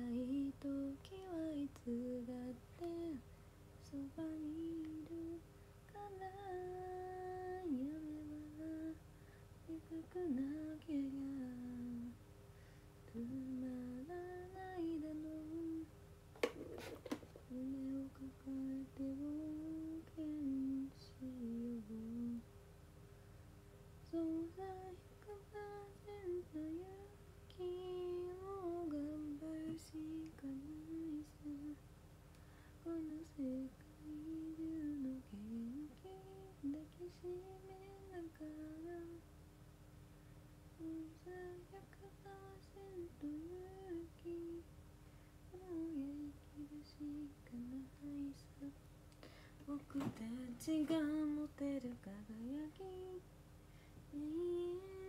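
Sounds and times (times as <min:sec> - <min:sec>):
woman humming a melody: 0:00.0 - 0:03.2, 0:03.8 - 0:09.0, 0:09.7 - 0:12.2, 0:13.1 - 0:15.9, 0:17.5 - 0:22.4, 0:24.1 - 0:31.8, 0:32.8 - 0:39.2, 0:40.8 - 0:44.7, 0:45.5 - 0:48.8, 0:54.1 - 0:55.0.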